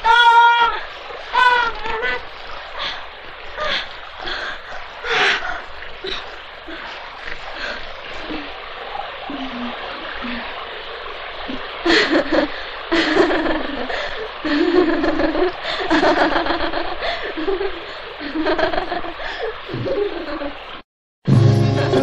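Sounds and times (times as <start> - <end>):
people laughing: 11.9 - 20.6.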